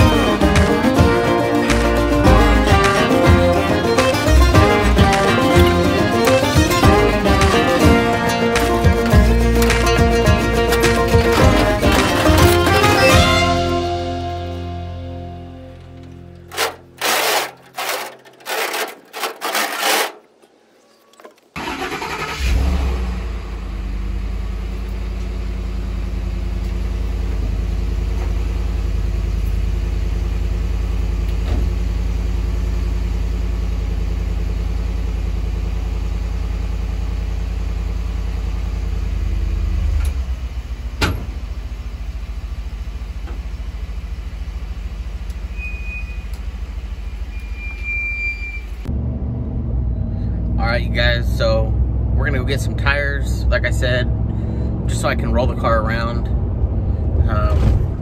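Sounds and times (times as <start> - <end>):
truck engine running: 0.0 - 20.5, 21.4 - 58.0
short high beep: 45.5 - 46.3, 47.4 - 48.7.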